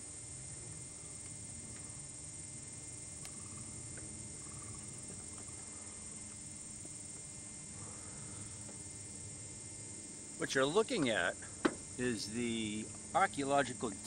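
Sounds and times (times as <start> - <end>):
insects droning: 0.0 - 14.0
faint ticks: 3.2 - 5.8.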